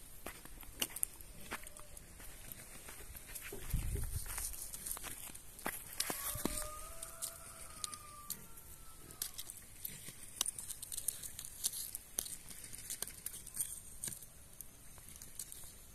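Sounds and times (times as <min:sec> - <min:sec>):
wood fire crackling and popping: 0:09.2 - 0:15.9.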